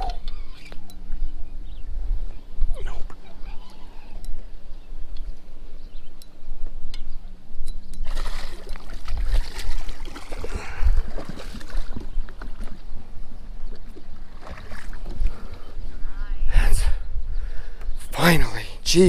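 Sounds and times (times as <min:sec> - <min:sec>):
water splashing at boat side: 0:08.0 - 0:12.9, 0:13.7 - 0:15.4.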